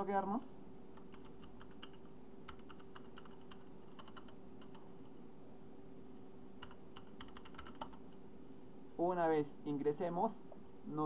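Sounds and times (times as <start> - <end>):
faint steady hum: 0.0 - 11.0
computer keyboard key clicks: 1.0 - 4.8, 6.6 - 8.0.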